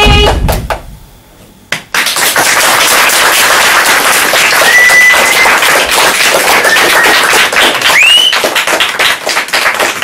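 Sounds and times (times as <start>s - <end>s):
audience applauding: 1.9s - 10.0s
whistles: 4.6s - 5.6s, 6.6s - 8.6s.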